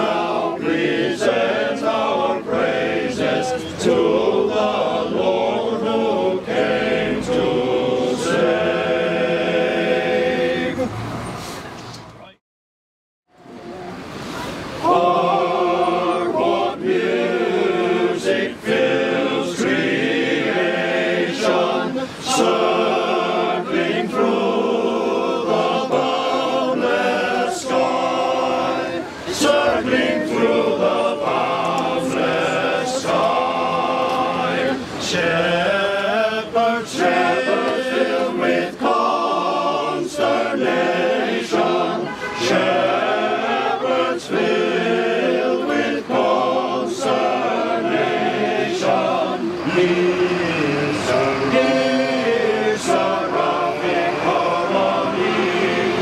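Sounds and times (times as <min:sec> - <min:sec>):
choir singing a carol: 0:00.0 - 0:11.1, 0:14.0 - 0:56.0.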